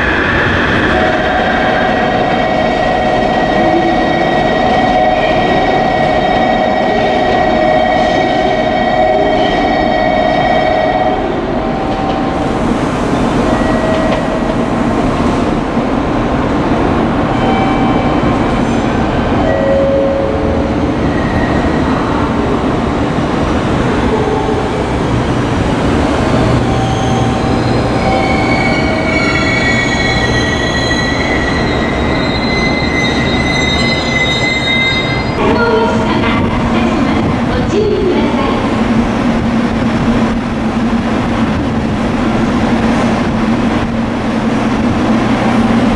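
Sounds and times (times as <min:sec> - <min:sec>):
train wheels squealing: 0:26.6 - 0:35.4
train rumble: 0:35.0 - 0:45.9.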